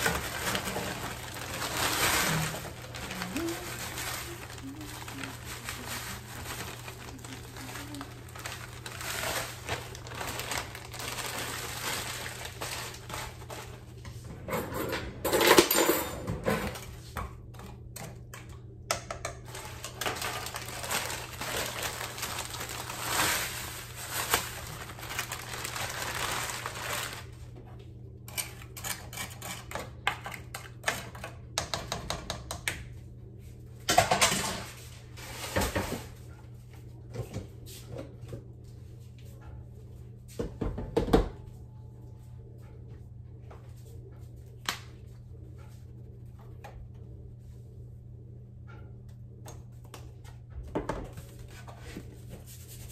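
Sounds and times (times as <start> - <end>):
frozen florets clattering into pot: 0.0 - 13.8, 19.2 - 27.4
plastic bag crinkling: 0.0 - 13.9, 19.5 - 27.4.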